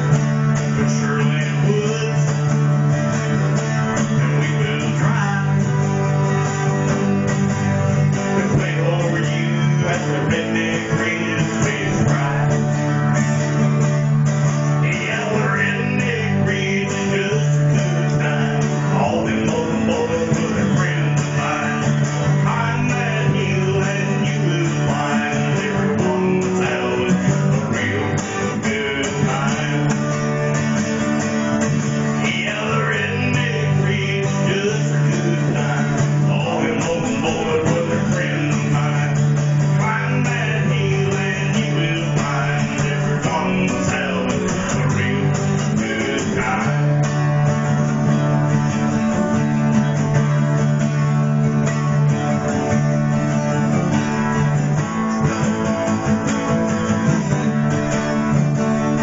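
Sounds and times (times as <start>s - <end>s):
acoustic guitars playing country tune: 0.0s - 59.0s.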